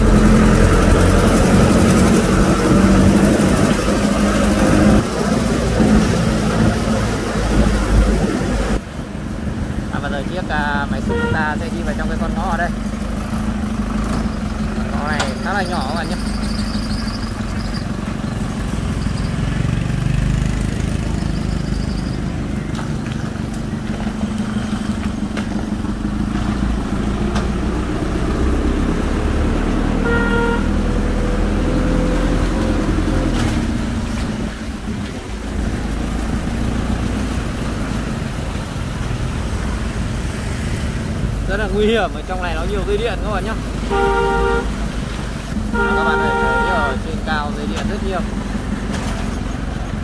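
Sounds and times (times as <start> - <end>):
truck engine running: 0.0 - 50.0
short horn toot: 11.0 - 11.6, 30.0 - 30.8, 43.9 - 44.8, 45.7 - 47.0.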